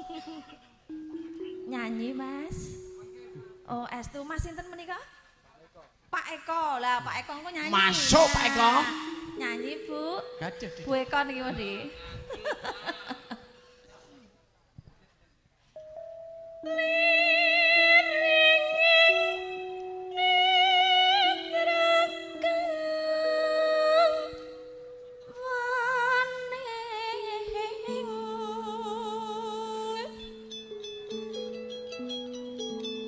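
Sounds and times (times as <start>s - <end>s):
held accompanying notes: 0.0s - 4.6s, 7.6s - 14.4s, 15.8s - 33.0s
woman singing into a microphone: 7.6s - 12.0s, 16.6s - 24.6s, 25.3s - 30.4s.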